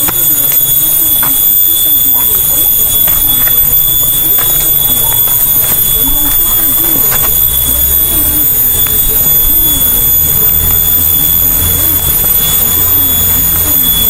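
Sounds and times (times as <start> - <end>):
insect chorus shrilling: 0.0 - 14.0.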